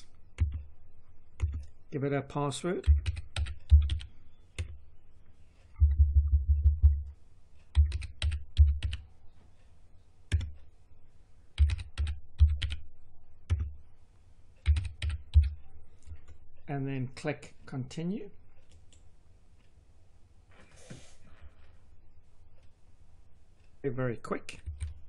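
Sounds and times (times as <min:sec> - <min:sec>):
computer keyboard typing: 0:00.4 - 0:00.7, 0:01.4 - 0:01.7, 0:02.8 - 0:04.8, 0:07.7 - 0:09.0, 0:10.3 - 0:10.6, 0:11.6 - 0:12.8, 0:13.4 - 0:13.8, 0:14.6 - 0:15.6, 0:24.6 - 0:25.0.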